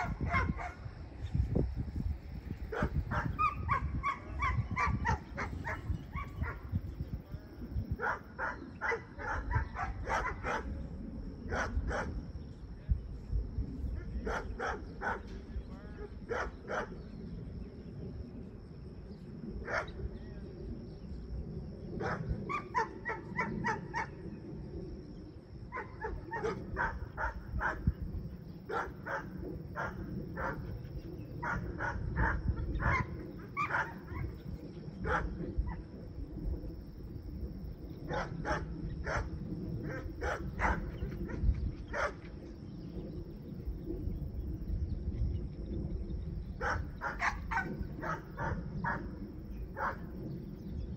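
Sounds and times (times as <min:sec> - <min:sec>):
dog barking: 0:00.0 - 0:00.8, 0:02.7 - 0:06.6, 0:08.0 - 0:10.7, 0:11.5 - 0:12.1, 0:14.2 - 0:15.2, 0:16.3 - 0:16.9, 0:19.7 - 0:19.9, 0:22.0 - 0:24.1, 0:25.7 - 0:27.8, 0:28.7 - 0:30.6, 0:31.4 - 0:34.3, 0:35.0 - 0:35.3, 0:38.1 - 0:39.3, 0:39.9 - 0:42.2, 0:46.6 - 0:49.1, 0:49.8 - 0:50.0.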